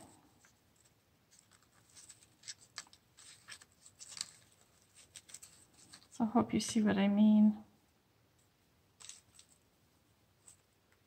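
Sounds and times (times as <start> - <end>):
paper crinkling by hand: 0.4 - 6.2, 9.0 - 9.7.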